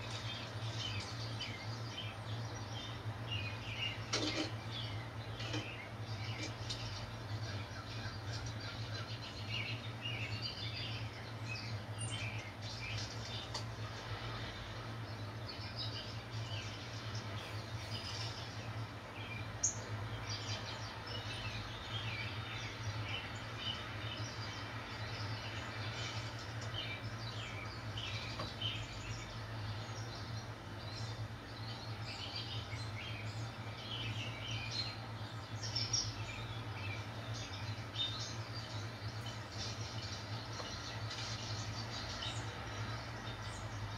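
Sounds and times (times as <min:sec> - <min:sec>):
birds chirping through speakers: 0:00.0 - 0:43.9
steady low hum: 0:00.0 - 0:43.9.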